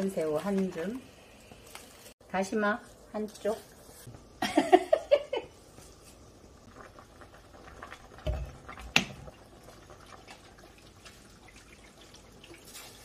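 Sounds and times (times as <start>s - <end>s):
liquid sounds in pot: 5.4s - 13.0s.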